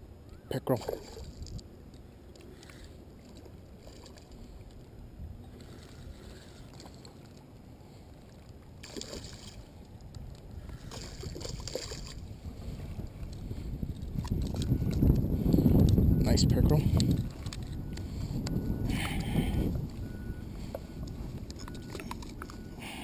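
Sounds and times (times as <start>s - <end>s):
wind rumble on microphone: 0.0s - 2.0s, 3.2s - 6.8s, 8.7s - 23.0s
fish splashing at water surface: 8.8s - 9.7s, 10.8s - 12.2s.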